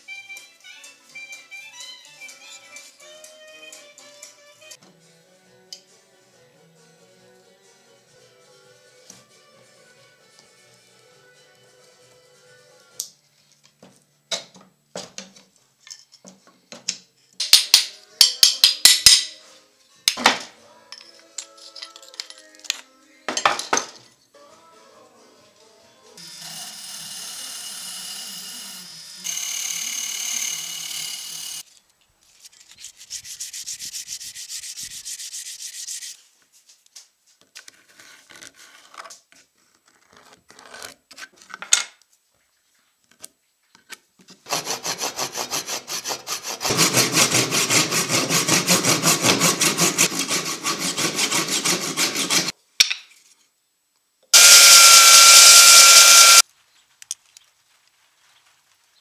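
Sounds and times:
power drill against metal shaft: 26.2 - 31.6, 54.4 - 56.4
rapid rhythmic rubbing strokes: 32.8 - 36.3, 44.5 - 52.5
belt sander whining: 54.4 - 56.4.

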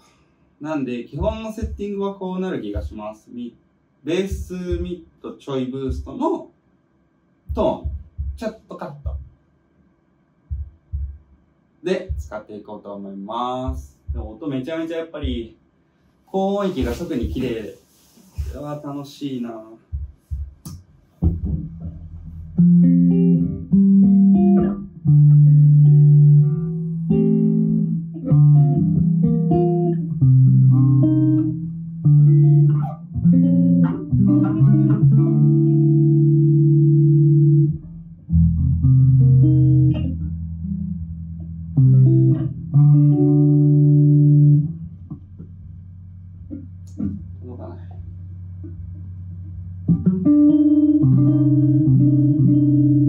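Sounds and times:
electric bass fingerpicked: 19.9 - 53.0.

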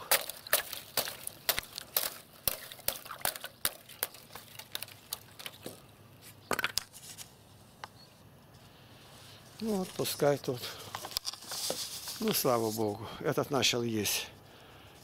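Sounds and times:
thin ice cracking: 0.0 - 5.8.

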